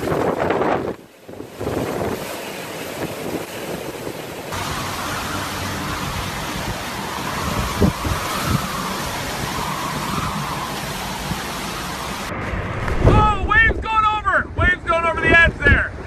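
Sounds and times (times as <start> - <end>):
gusts thumping the microphone: 0.0 - 4.7, 6.0 - 16.0
heavy rain: 0.0 - 15.4
howling wind: 0.0 - 16.0
surf crashing against a seawall: 0.0 - 16.0.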